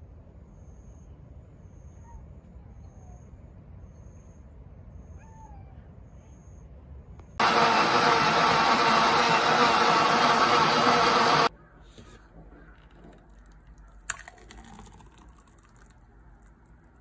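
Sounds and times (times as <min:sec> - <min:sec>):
blender running: 0:07.4 - 0:11.5.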